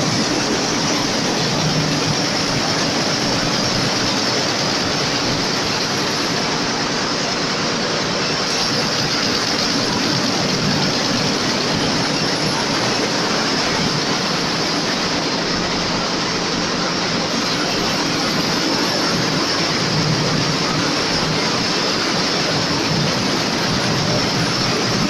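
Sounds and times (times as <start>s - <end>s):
textile machine mechanical din: 0.0s - 25.0s.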